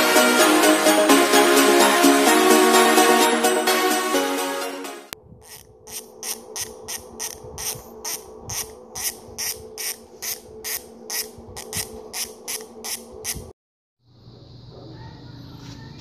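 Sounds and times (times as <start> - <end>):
bicycle freehub ratcheting: 5.4 - 13.5.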